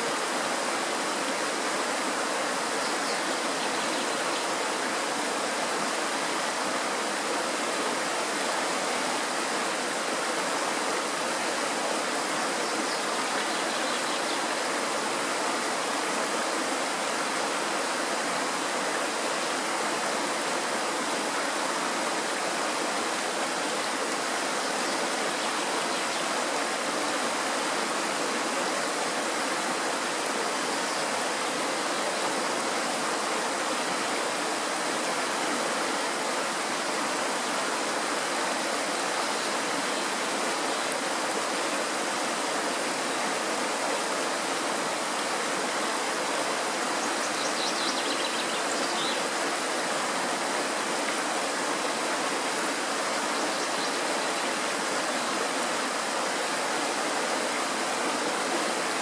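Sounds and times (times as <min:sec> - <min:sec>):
stream rushing over rocks: 0:00.0 - 0:59.0.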